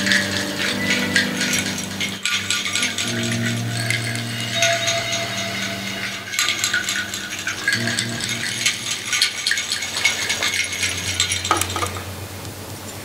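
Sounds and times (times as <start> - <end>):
small hard objects rattling: 0.0 - 12.2
low steady drone: 0.0 - 13.0.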